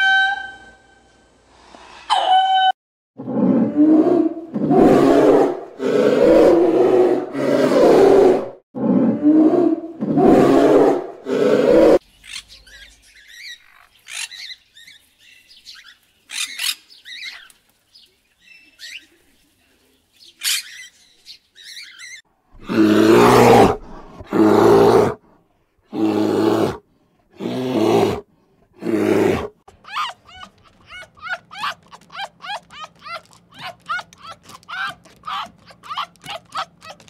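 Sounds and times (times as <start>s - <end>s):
bear growling roar: 3.2s - 12.0s, 22.6s - 25.2s, 25.9s - 26.8s, 27.4s - 28.2s, 28.8s - 29.6s
harsh animal calls: 28.8s - 37.0s.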